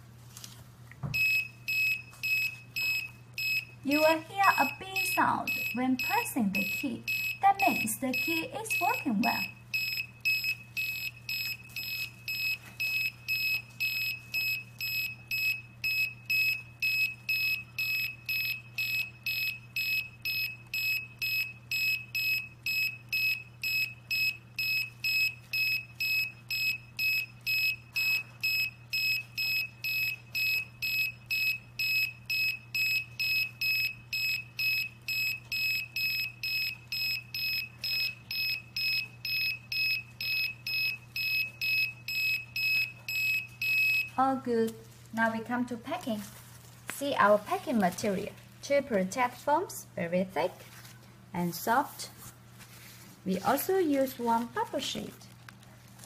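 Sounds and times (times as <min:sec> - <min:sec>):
short high beeps: 0:04.5 - 0:44.2.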